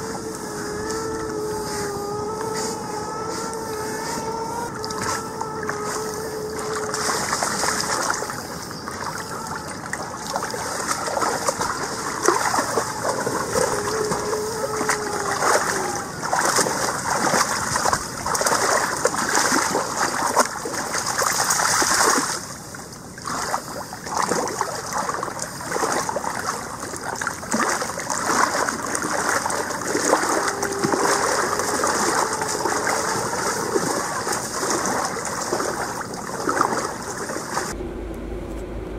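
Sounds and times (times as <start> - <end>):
dogs splashing through water: 6.6 - 37.7.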